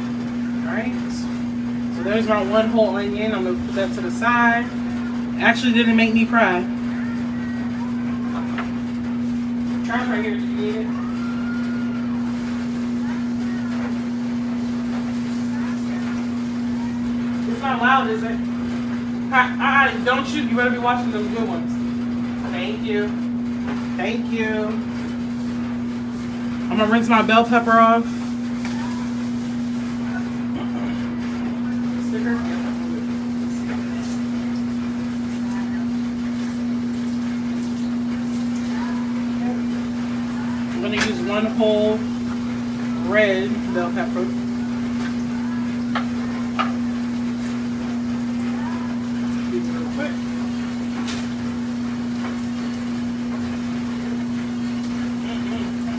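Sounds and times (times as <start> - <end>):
appliance electric hum: 0.0 - 55.9
constant hiss: 0.0 - 55.9
faint voices: 0.0 - 55.9.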